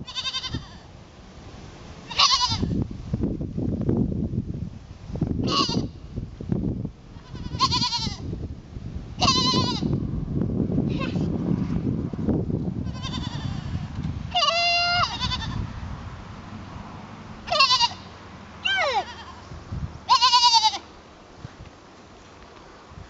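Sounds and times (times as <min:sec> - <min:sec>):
young goat bleating: 0:00.0 - 0:00.9, 0:02.1 - 0:02.8, 0:05.4 - 0:06.0, 0:07.1 - 0:08.3, 0:09.2 - 0:10.0, 0:12.8 - 0:15.7, 0:17.4 - 0:20.9.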